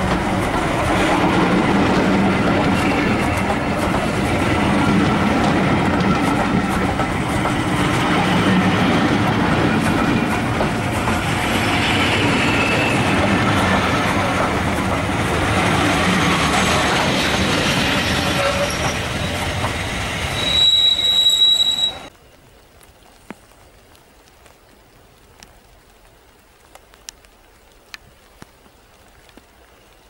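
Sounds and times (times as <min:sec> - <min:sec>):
train wheels rumbling on rails: 0:00.0 - 0:22.1
high wheel squeal: 0:12.0 - 0:13.1, 0:17.4 - 0:22.1.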